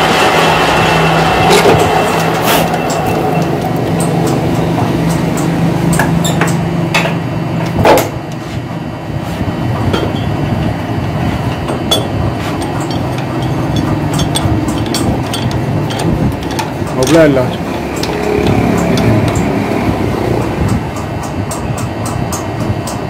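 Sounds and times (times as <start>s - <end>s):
machine hum: 0.0s - 23.0s
metal clinks and knocks: 9.9s - 19.9s.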